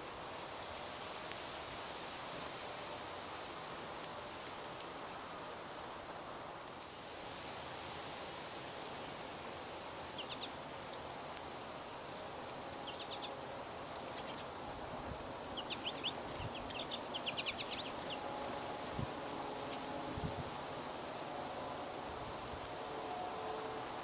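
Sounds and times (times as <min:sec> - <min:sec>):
steady background hiss: 0:00.0 - 0:24.0
finches twittering: 0:15.6 - 0:18.2.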